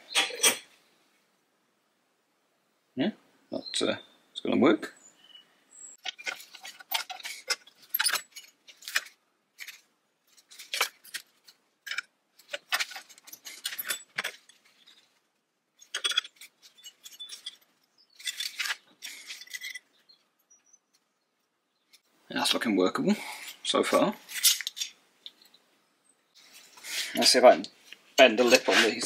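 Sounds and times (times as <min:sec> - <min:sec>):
metal pieces clinking and scraping: 0:06.0 - 0:15.1, 0:15.8 - 0:20.2, 0:24.3 - 0:25.6.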